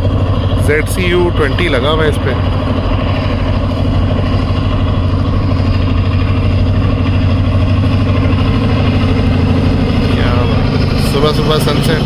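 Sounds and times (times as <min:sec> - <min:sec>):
diesel locomotive engine droning: 0:00.0 - 0:12.0.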